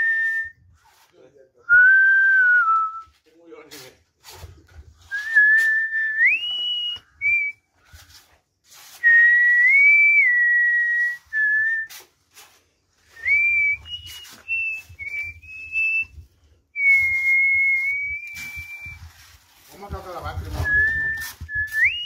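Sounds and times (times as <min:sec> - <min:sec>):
person whistling a tune: 0:00.0 - 0:00.7, 0:01.7 - 0:03.2, 0:05.1 - 0:07.6, 0:09.0 - 0:12.1, 0:13.0 - 0:19.1, 0:20.6 - 0:22.0.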